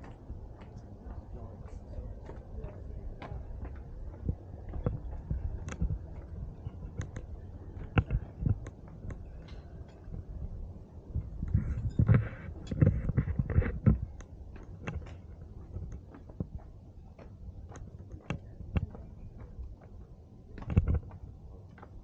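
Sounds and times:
footsteps on stone paving: 0:00.0 - 0:22.0.

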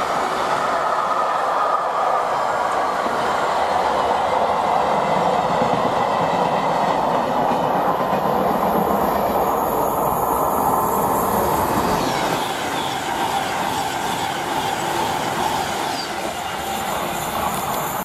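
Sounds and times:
train wheels rumbling on rails: 0:00.0 - 0:18.0
high wheel squeal: 0:08.8 - 0:18.0.

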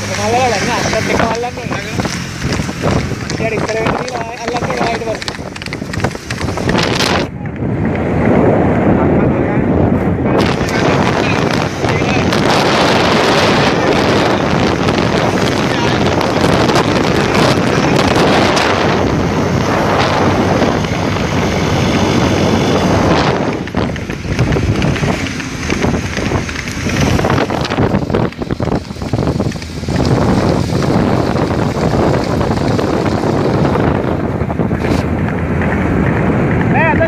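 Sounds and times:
vehicle road and engine noise: 0:00.0 - 0:37.0
wind buffeting microphone: 0:00.0 - 0:37.0.

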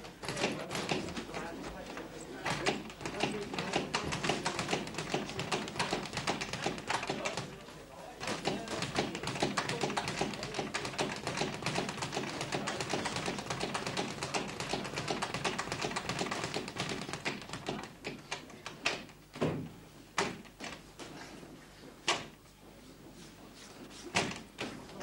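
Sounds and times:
boxing punches tapping and thudding: 0:02.5 - 0:07.4, 0:08.2 - 0:18.2.

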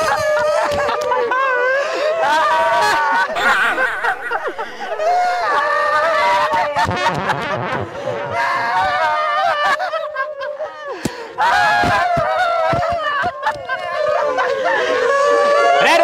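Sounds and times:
exaggerated laughter: 0:00.0 - 0:10.9.

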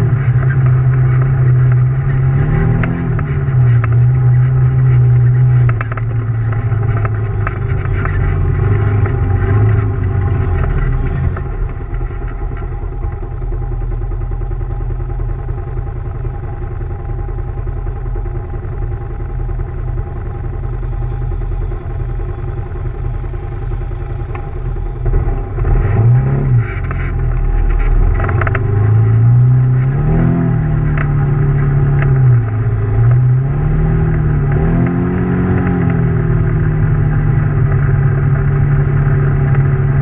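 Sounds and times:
engine revving: 0:00.0 - 0:13.9, 0:20.0 - 0:40.0
utility vehicle engine idling: 0:00.0 - 0:40.0.

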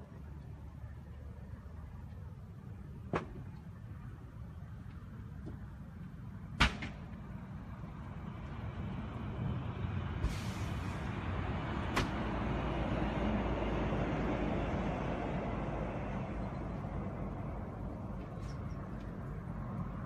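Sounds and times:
fire rumbling: 0:01.7 - 0:20.0
sharp bangs: 0:06.6 - 0:07.1
brief hiss: 0:10.2 - 0:11.1.

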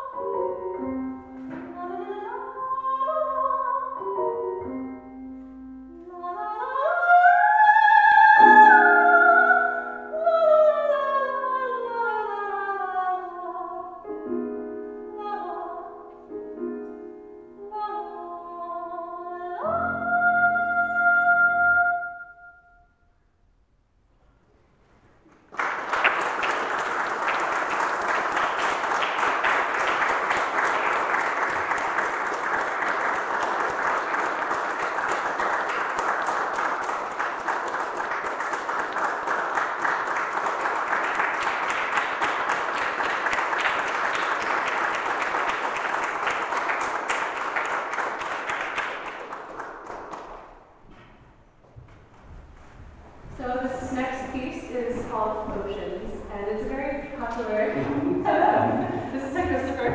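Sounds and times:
audience applauding: 0:25.3 - 0:50.5.

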